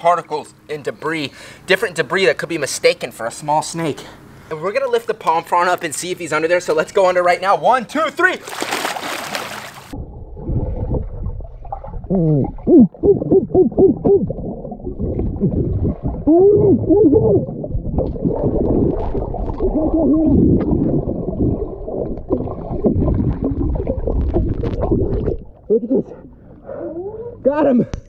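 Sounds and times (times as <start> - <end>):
camera splashing into water: 8.4 - 10.0
underwater bubbling and gurgling: 9.8 - 26.8
short warbling tones: 10.0 - 25.7.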